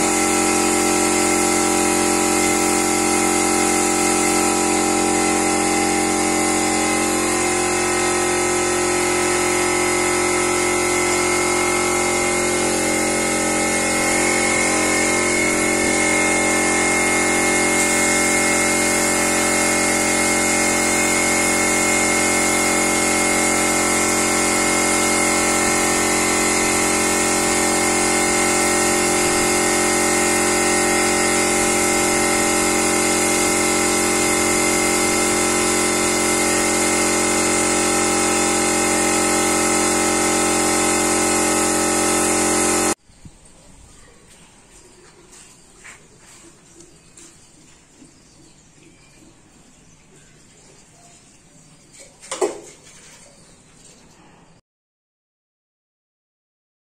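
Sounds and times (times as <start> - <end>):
air compressor running: 0.0 - 43.0
spray gun hissing: 0.0 - 43.0.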